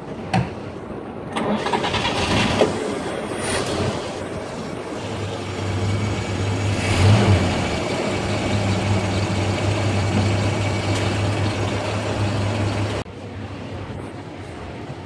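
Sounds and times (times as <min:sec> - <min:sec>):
pickup truck engine idling: 0:04.3 - 0:13.0.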